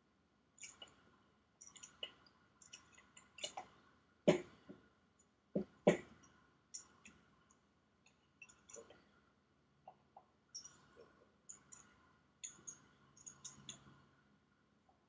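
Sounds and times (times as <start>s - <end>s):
metal parts clicking and knocking: 0.6s - 1.0s, 1.6s - 4.6s, 8.0s - 9.0s, 9.9s - 13.9s.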